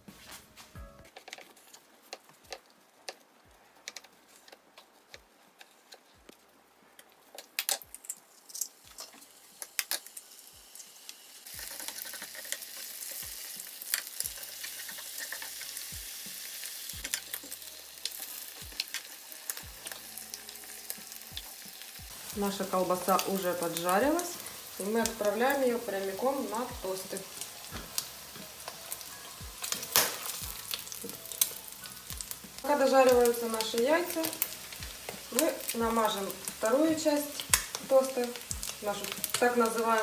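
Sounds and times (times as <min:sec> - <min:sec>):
food sizzling in oil: 0:07.6 - 0:40.0.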